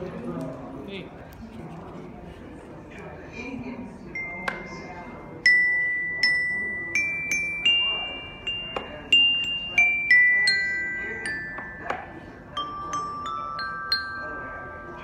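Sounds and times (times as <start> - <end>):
glockenspiel notes ringing: 5.4 - 15.0.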